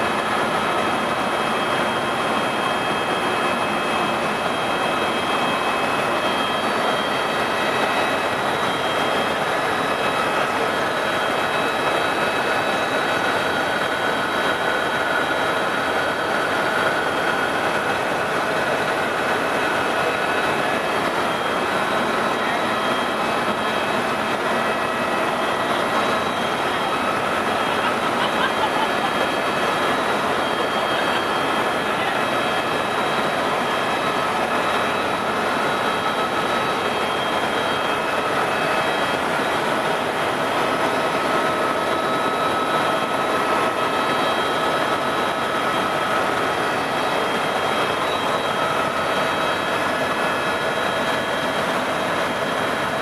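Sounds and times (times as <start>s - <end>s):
helicopter rotor and engine rush: 0.0s - 53.0s
high-pitched whines: 0.2s - 53.0s.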